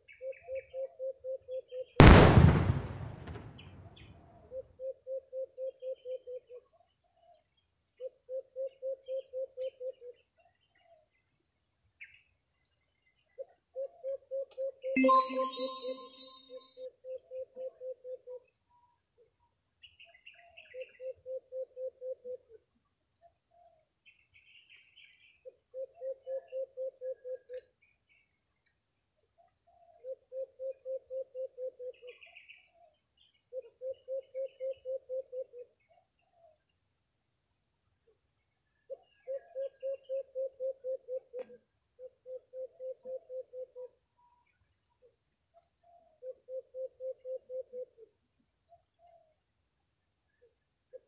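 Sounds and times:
bird chirps: 0:15.0 - 0:16.6.

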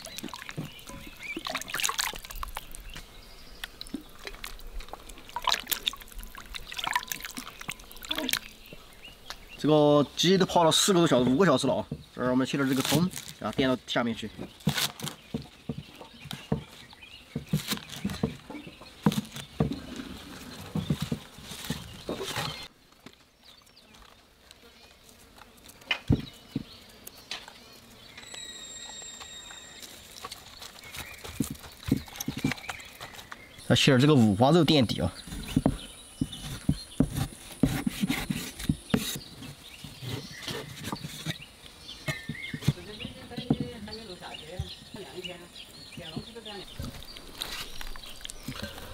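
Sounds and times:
cleaver chopping on wooden block: 0:35.4 - 0:39.2.

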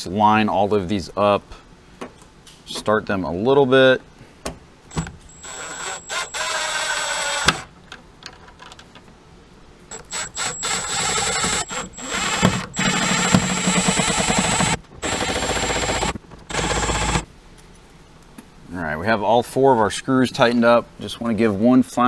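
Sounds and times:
impact driver whirring: 0:04.9 - 0:07.7, 0:09.9 - 0:17.2.

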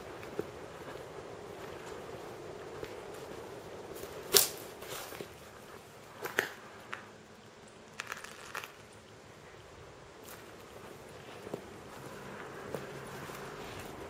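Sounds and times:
crunching footsteps: 0:00.0 - 0:14.0.

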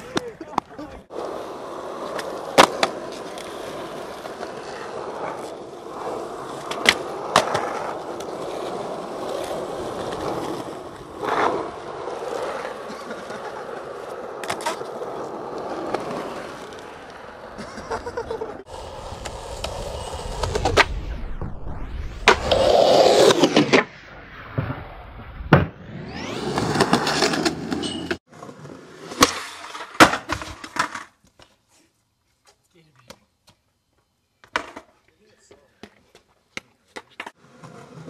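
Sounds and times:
skateboard wheels rolling on asphalt: 0:00.0 - 0:32.6, 0:33.3 - 0:38.0
skateboard deck clacking: 0:01.6 - 0:05.6, 0:06.4 - 0:20.9, 0:34.4 - 0:35.0.

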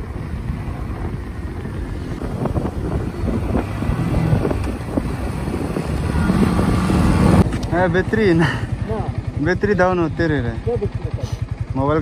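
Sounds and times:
wind rumbling on microphone: 0:00.0 - 0:07.7
motorcycle running: 0:00.0 - 0:12.0.

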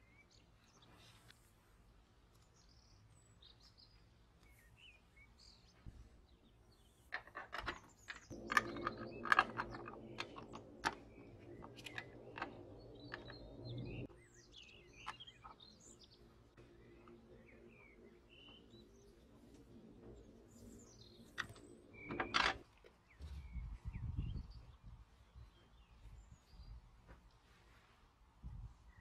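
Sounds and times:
small birds chirping: 0:00.0 - 0:27.8
small metal parts clicking: 0:07.1 - 0:14.1
low hum: 0:08.1 - 0:22.6.

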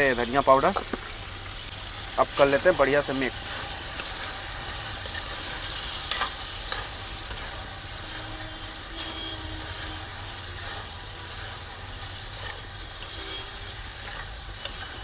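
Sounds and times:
chicken frying and sizzling: 0:00.0 - 0:15.0
steel spoon clinking on pan: 0:06.0 - 0:07.6.

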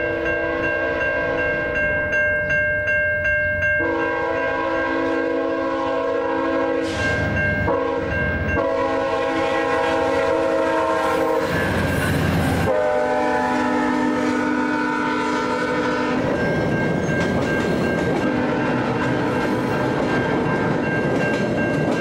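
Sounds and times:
dissonant locomotive horn: 0:00.0 - 0:01.8, 0:03.8 - 0:11.9, 0:12.6 - 0:16.6, 0:18.2 - 0:20.6
rush of passing train: 0:00.0 - 0:22.0
train wheels clickety-clack: 0:11.0 - 0:12.8, 0:15.6 - 0:22.0.

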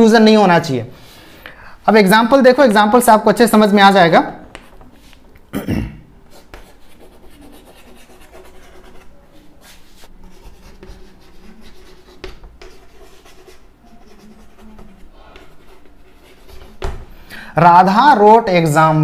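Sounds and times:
chalk scratching on chalkboard: 0:04.5 - 0:05.2, 0:06.3 - 0:17.0
chalk tapping on chalkboard: 0:04.5 - 0:05.2, 0:06.3 - 0:17.1.

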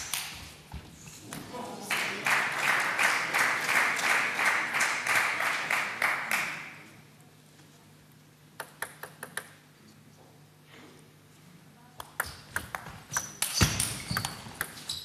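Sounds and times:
audience clapping rhythmically: 0:00.0 - 0:00.6, 0:01.8 - 0:07.0
table tennis ball bouncing: 0:12.0 - 0:15.0.

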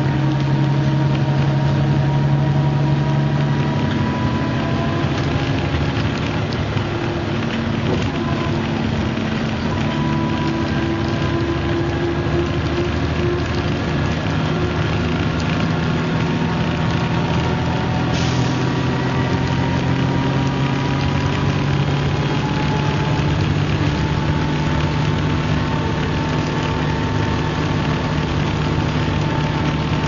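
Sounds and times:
bus engine droning: 0:00.0 - 0:30.0.

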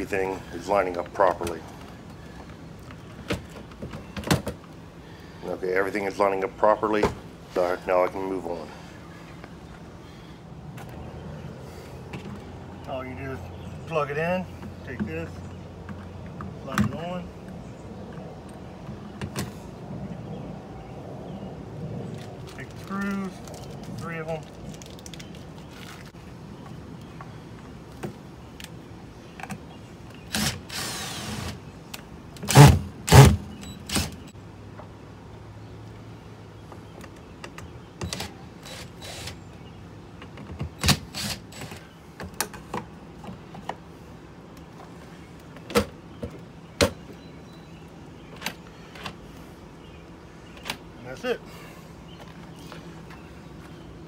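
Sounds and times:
cordless drill driving screws: 0:30.3 - 0:31.6, 0:38.0 - 0:39.4, 0:40.8 - 0:41.8.

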